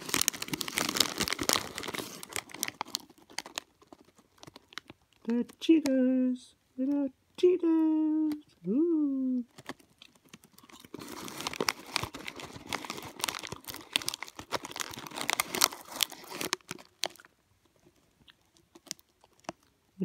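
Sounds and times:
snack bag crinkling: 0.0 - 6.0, 9.3 - 20.0.

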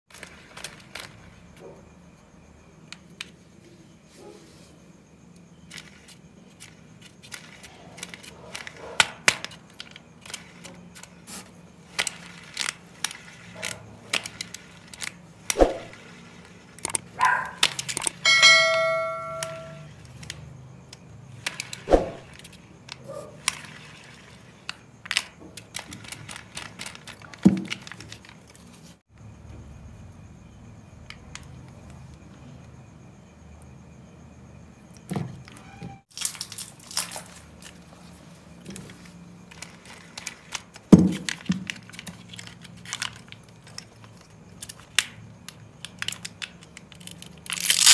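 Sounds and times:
steady ringing tone: 18.1 - 20.0.

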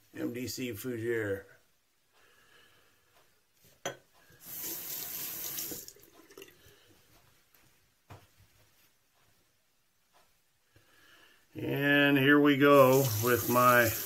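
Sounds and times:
sink tap water flowing: 4.4 - 6.5, 12.7 - 14.0.

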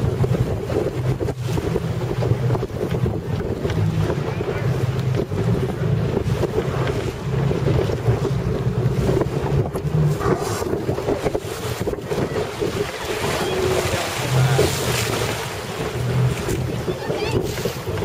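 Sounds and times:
boat motor hum: 0.0 - 18.0
water rushing and splashing: 0.0 - 18.0
wind buffeting microphone: 0.0 - 18.0.

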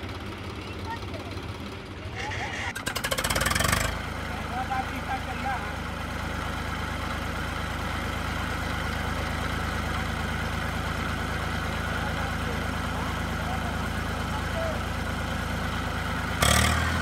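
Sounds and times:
tractor diesel engines running: 0.0 - 17.0.

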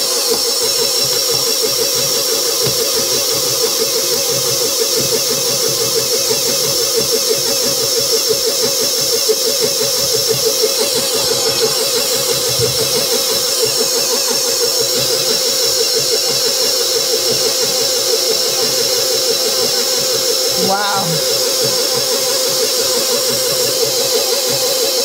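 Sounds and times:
stand mixer motor whine: 0.0 - 25.0.

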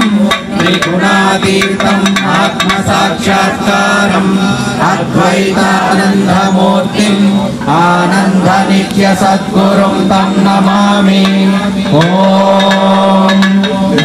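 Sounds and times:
group singing along: 0.0 - 14.0
held drone note: 0.0 - 14.0.

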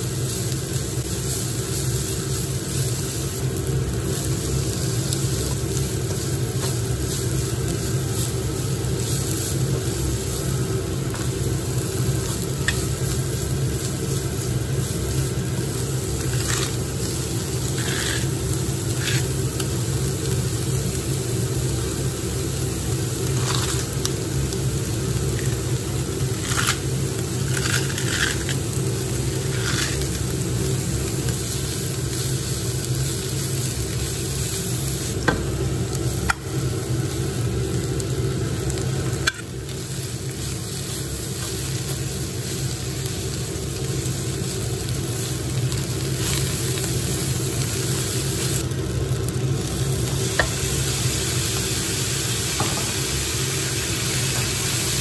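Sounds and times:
steady low hum: 0.0 - 55.0
vegetables sizzling in a frying pan: 0.0 - 55.0
spatula scrapes and rustles: 16.2 - 16.8, 17.6 - 19.4, 26.4 - 28.6, 29.3 - 30.2.

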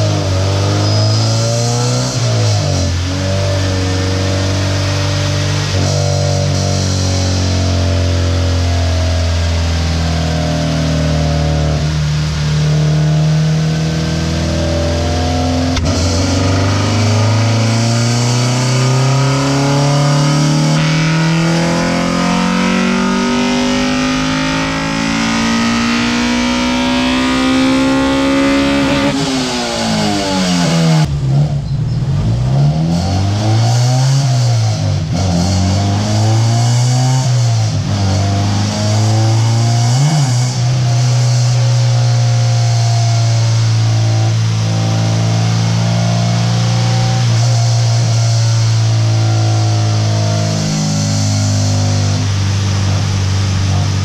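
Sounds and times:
car engine revving on a dyno: 0.0 - 54.0.

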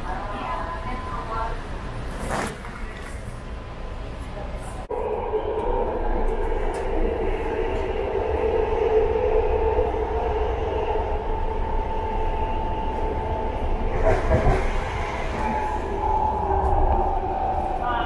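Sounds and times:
train car rumble and whine: 0.0 - 18.0
train rattle: 5.6 - 18.0.

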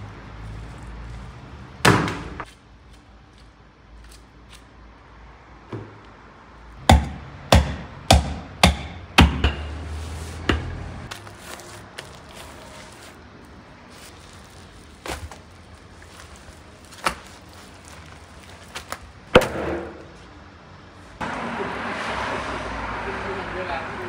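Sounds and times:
hatchet chopping on wooden block: 6.8 - 9.8.

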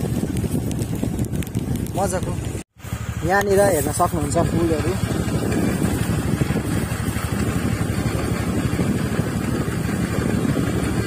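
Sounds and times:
wind on microphone: 0.0 - 2.6, 3.4 - 11.0
scooter engine running: 0.0 - 11.0.

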